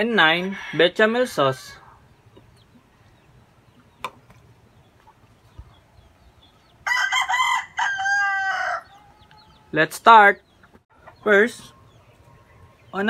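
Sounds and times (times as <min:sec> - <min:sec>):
rooster crowing: 0:06.8 - 0:09.7.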